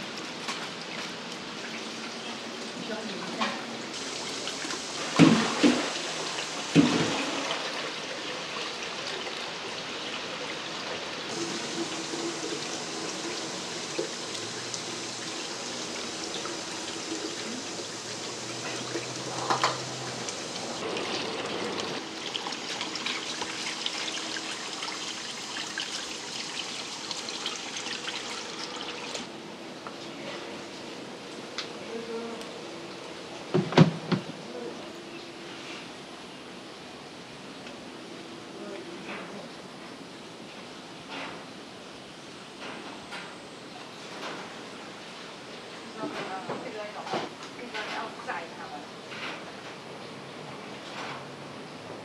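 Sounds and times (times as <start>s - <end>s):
tap water running into tub: 3.9s - 29.3s.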